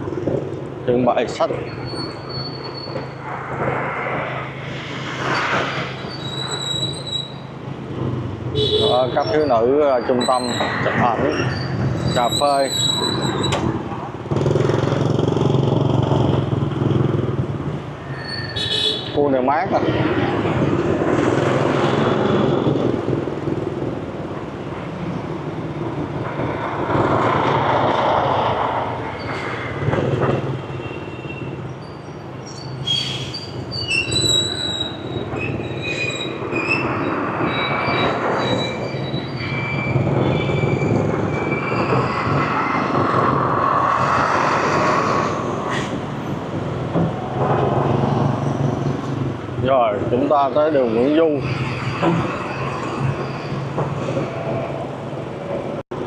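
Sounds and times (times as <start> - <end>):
traffic and road noise: 0.0 - 56.0
high-pitched squeals: 1.4 - 3.3, 4.2 - 7.7, 8.6 - 13.7, 18.0 - 20.6, 30.6 - 46.4, 50.2 - 55.6.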